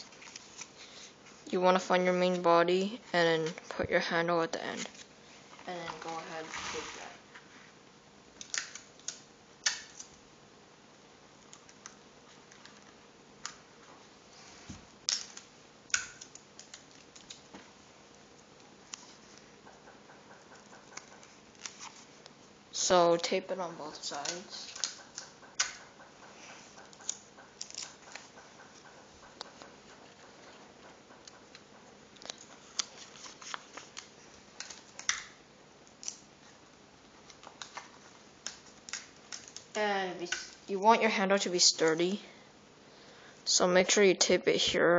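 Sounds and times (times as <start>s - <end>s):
paper tubes handled: 32.2s - 35.2s.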